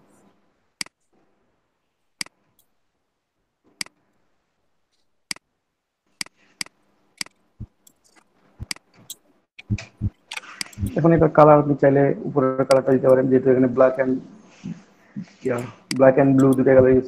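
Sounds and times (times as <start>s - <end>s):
computer mouse clicking: 6.2s - 11.3s, 12.7s - 13.2s, 15.5s - 17.0s.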